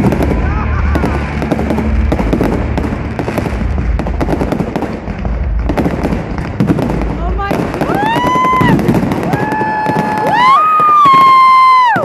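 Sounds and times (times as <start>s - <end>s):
low rumble: 0.0s - 9.6s
fireworks crackling and popping: 0.0s - 12.0s.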